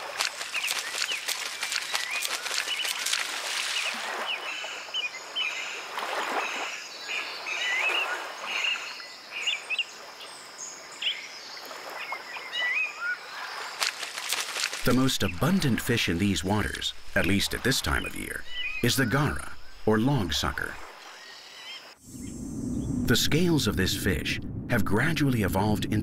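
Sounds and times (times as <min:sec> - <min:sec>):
water splashing: 0:00.0 - 0:06.8, 0:13.2 - 0:21.3
small birds chirping: 0:00.1 - 0:23.0.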